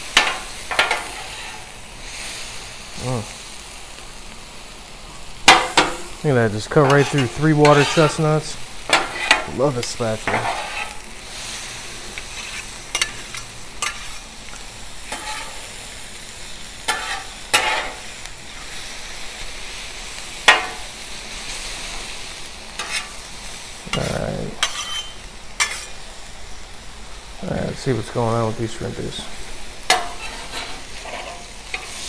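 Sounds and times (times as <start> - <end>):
vegetables sizzling on a griddle: 0.0 - 32.0
metal spatulas scraping and clacking: 0.2 - 1.7, 6.8 - 8.3, 8.9 - 9.6, 10.2 - 11.0, 12.2 - 14.2, 15.1 - 15.6, 16.9 - 18.0, 22.8 - 23.2, 23.9 - 26.0, 29.9 - 32.0.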